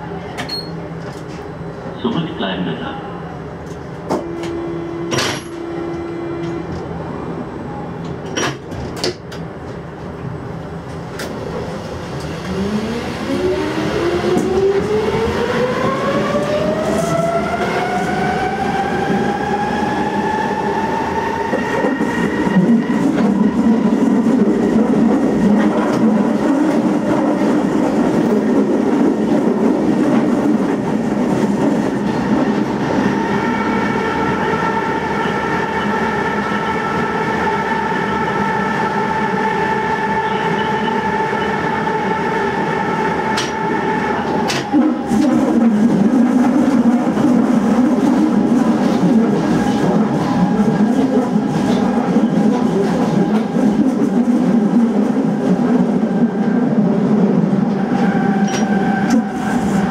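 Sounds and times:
clicks in train cab: 0:08.0 - 0:09.8, 0:43.4 - 0:43.6.

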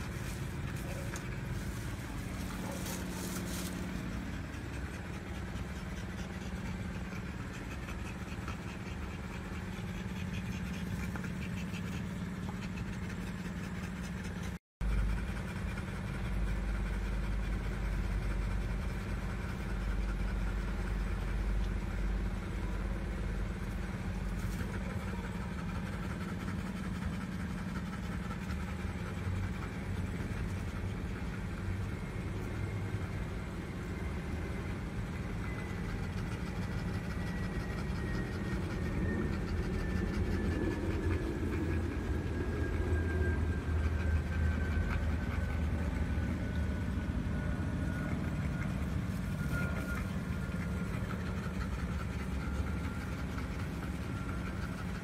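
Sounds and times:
low machine hum: 0:00.0 - 0:55.0.

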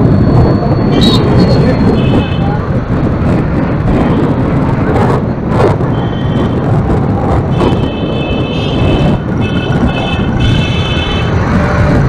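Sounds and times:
traffic rumble: 0:00.0 - 0:12.0
wind on microphone: 0:00.0 - 0:12.0
vehicle horns: 0:01.0 - 0:02.5, 0:05.9 - 0:06.7, 0:07.5 - 0:12.0.

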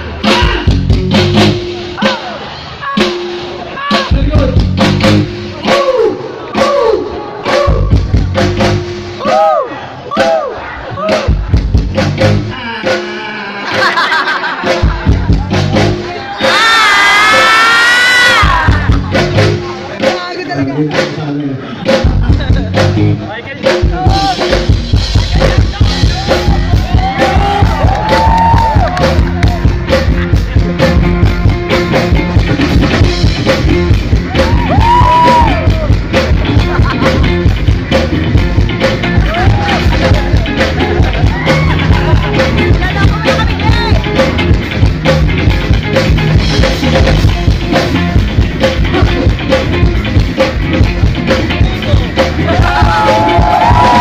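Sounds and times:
steady drum beat: 0:00.0 - 0:54.0
electric guitars: 0:11.3 - 0:54.0
person singing: 0:12.5 - 0:13.8.

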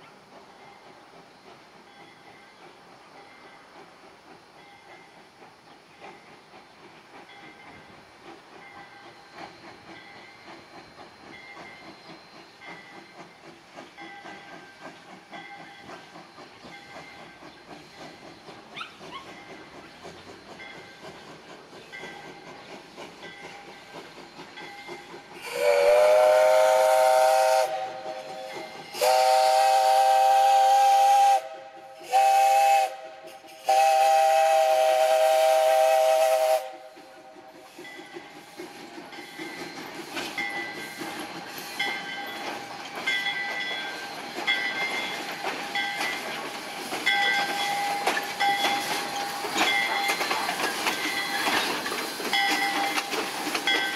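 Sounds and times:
locomotive running noise: 0:00.0 - 0:53.9
steam locomotive whistle blasts: 0:25.4 - 0:37.8, 0:47.3 - 0:50.2.

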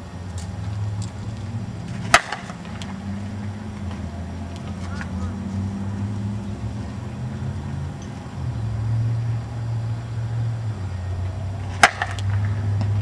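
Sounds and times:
bat hitting softball: 0:01.9 - 0:03.0, 0:11.7 - 0:13.0.

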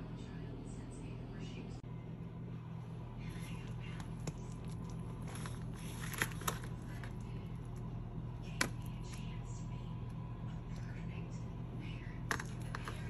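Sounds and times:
low hum: 0:00.0 - 0:13.0
foil crinkling: 0:04.5 - 0:07.3.

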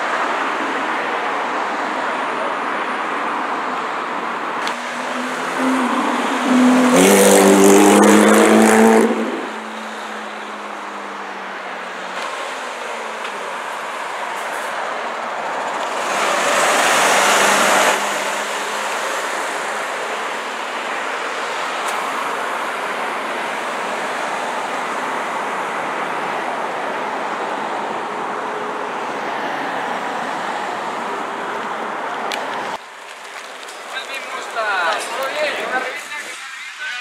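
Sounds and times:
road traffic passing: 0:00.0 - 0:37.0
heavy truck passing: 0:04.6 - 0:24.6.

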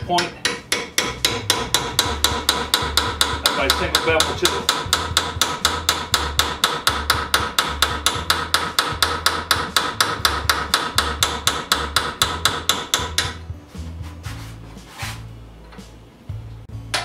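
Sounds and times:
hammer striking metal chisel: 0:00.0 - 0:13.5.

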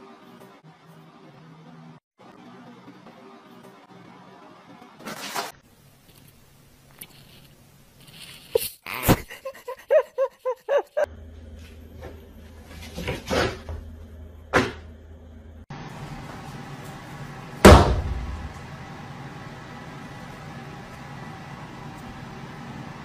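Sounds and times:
spin-mop basket whirring: 0:10.7 - 0:23.0
loud thump: 0:17.6 - 0:18.5.

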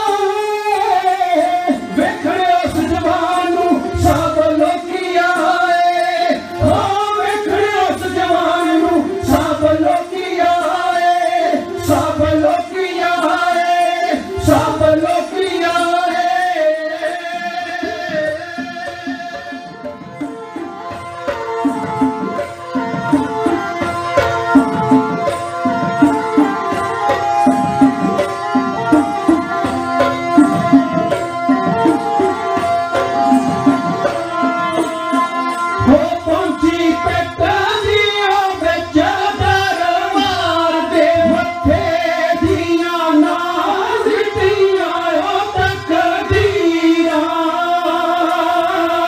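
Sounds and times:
men singing: 0:00.0 - 0:20.7, 0:28.8 - 0:49.0
sarangi melody: 0:00.0 - 0:49.0
hand drums beating: 0:17.5 - 0:47.0.

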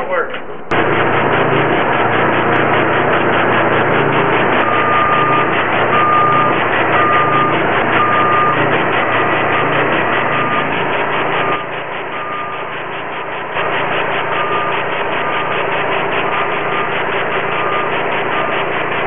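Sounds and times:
pressure washer running: 0:00.7 - 0:19.0
short beeps: 0:04.6 - 0:08.6, 0:12.2 - 0:12.7.

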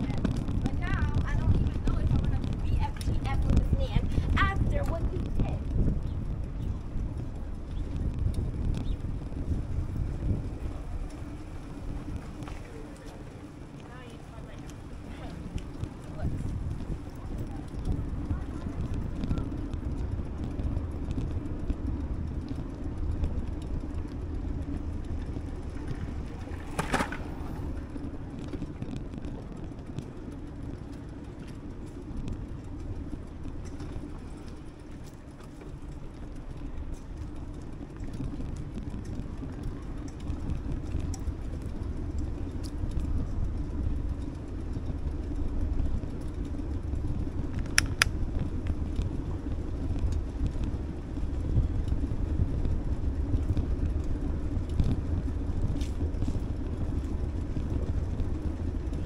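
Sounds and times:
bicycle rolling over brick paving: 0:00.0 - 0:59.0
sharp clicks: 0:47.5 - 0:48.2.

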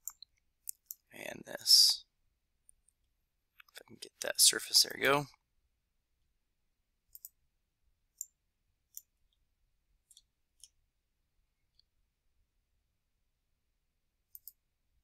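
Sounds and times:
computer mouse clicking: 0:00.0 - 0:01.1, 0:07.1 - 0:07.4, 0:08.1 - 0:09.4, 0:14.3 - 0:14.6.

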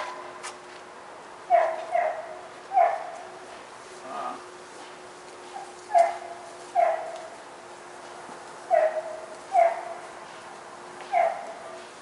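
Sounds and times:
faint steady hum: 0:00.0 - 0:12.0
distant dog barking: 0:01.5 - 0:03.4, 0:05.5 - 0:07.4, 0:08.7 - 0:10.2, 0:11.0 - 0:11.8.

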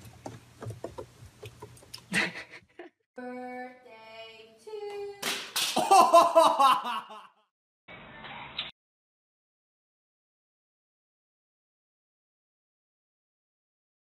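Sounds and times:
laughter and cheering: 0:05.8 - 0:07.4.

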